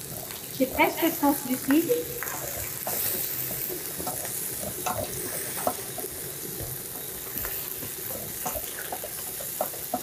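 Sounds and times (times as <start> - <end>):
rice sizzling in a pan: 0.0 - 10.0
utensil scraping and tapping pan: 7.8 - 10.0.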